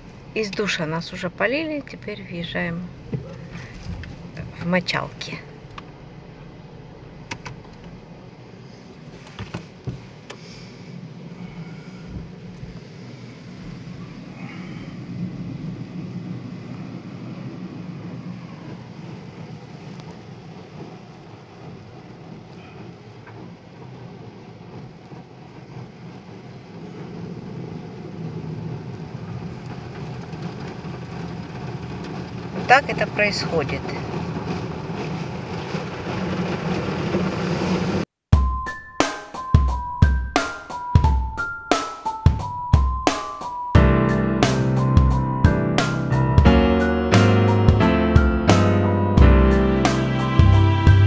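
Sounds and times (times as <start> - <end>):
low machinery hum: 0.0 - 33.2
muffled water spray rumble: 0.0 - 38.0
car wash brushes: 2.9 - 18.1, 18.7 - 38.1.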